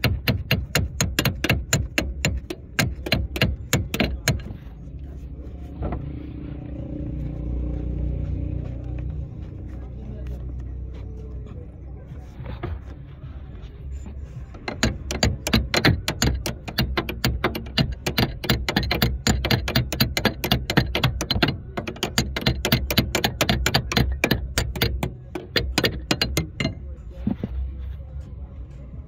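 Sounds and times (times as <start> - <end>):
ratchet wrench clicking: 14.6 - 26.8.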